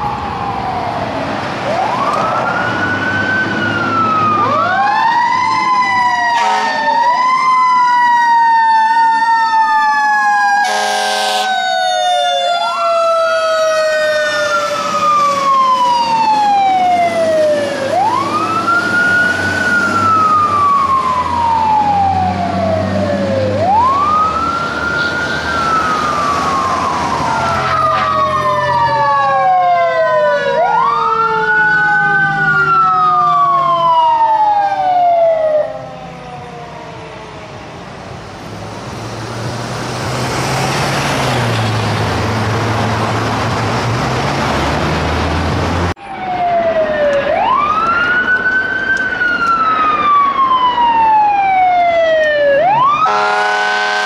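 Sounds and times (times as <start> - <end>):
fire engine sirens wailing: 0.0 - 54.0
air horn blasts: 6.3 - 7.0, 10.6 - 11.6, 27.5 - 28.3, 53.0 - 54.0.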